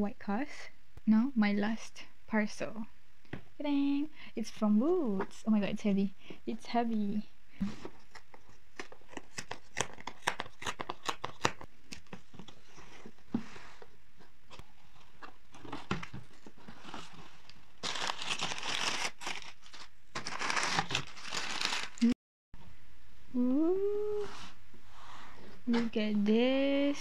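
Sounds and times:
cardboard tear strip ripping: 8.8 - 11.6, 17.8 - 22.1
packing paper crumpling: 15.5 - 22.1.

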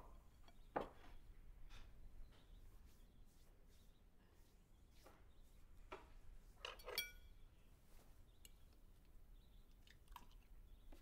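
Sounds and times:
tableware clinking: 6.7 - 7.3.

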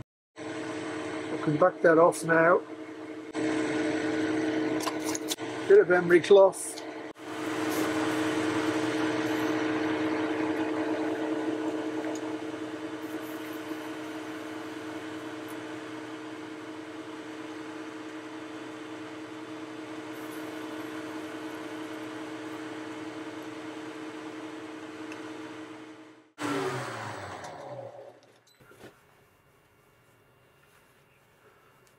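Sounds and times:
metal lathe humming: 3.2 - 17.2
emery cloth rubbing hiss: 29.0 - 31.8.

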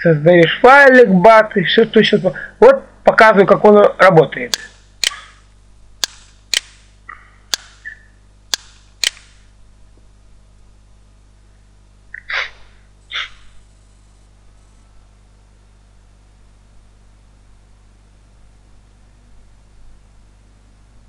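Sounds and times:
computer mouse clicks: 4.5 - 5.4, 6.0 - 6.8, 7.5 - 9.4
short breathy noises: 12.2 - 13.6.

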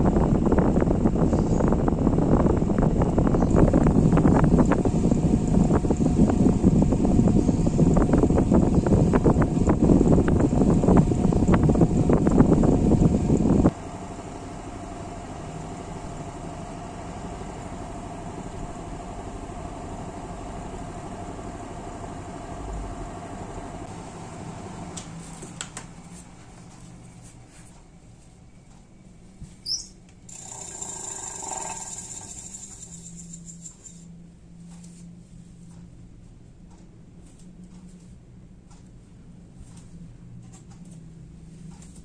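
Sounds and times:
fan motor humming with rushing air: 0.0 - 42.0
short high chirp: 29.6 - 30.0.

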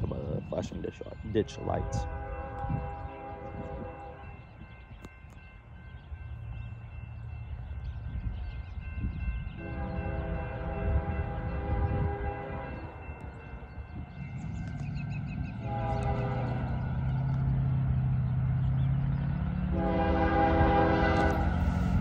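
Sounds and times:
low rumble of train: 0.0 - 22.0
train air horn blasts: 1.6 - 4.3, 9.6 - 13.0, 15.6 - 16.8, 19.7 - 21.7.

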